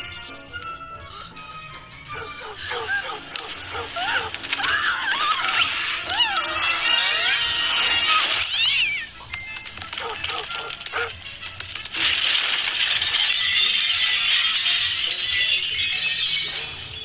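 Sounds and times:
film music: 0.0 - 17.0
animal yowls and screeches: 2.1 - 11.2.

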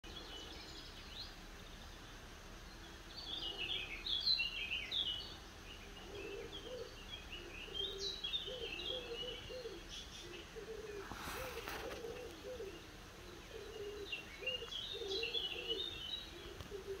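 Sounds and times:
dove cooing: 5.9 - 17.0.

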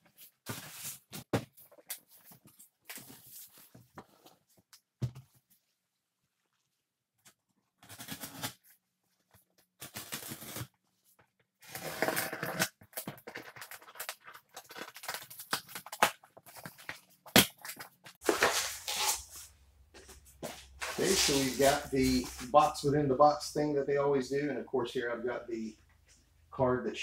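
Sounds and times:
packing tape ripping off cardboard: 7.8 - 8.7, 9.7 - 10.8, 11.6 - 19.5, 20.8 - 21.9.

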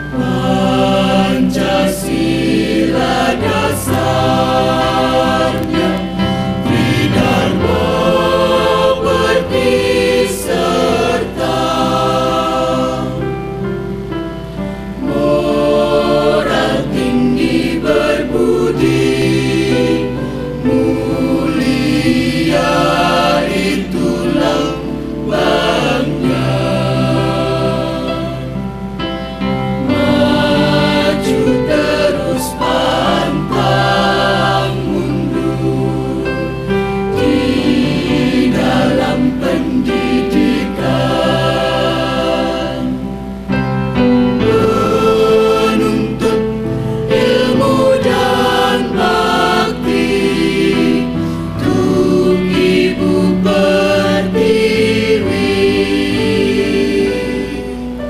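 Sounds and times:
mixed choir singing: 0.0 - 58.0.

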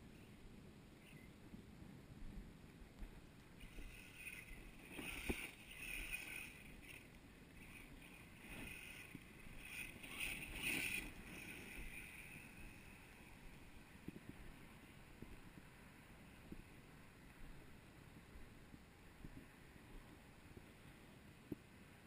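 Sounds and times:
electric motor whirring: 3.6 - 13.2.

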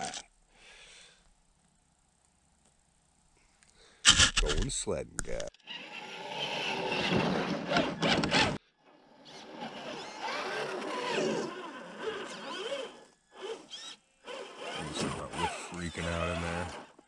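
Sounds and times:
electric motor and gears whining: 5.6 - 17.0.

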